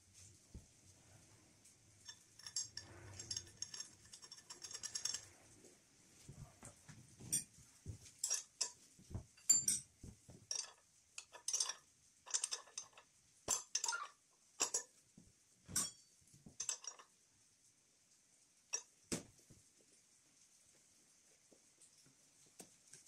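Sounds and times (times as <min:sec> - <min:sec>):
metal parts clicking and clinking: 0:02.1 - 0:05.4, 0:08.2 - 0:08.8, 0:09.4 - 0:14.9, 0:15.7 - 0:17.1.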